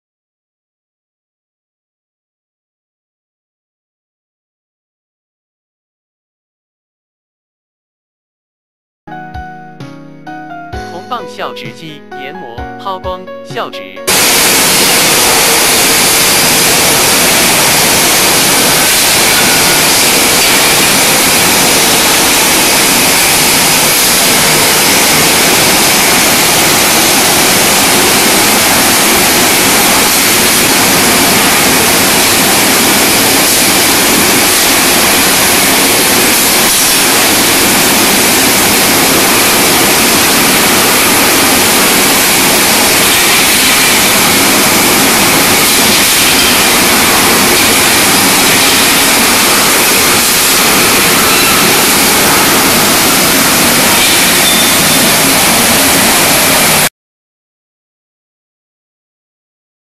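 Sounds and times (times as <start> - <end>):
rod straightening machine running: 14.1 - 56.9.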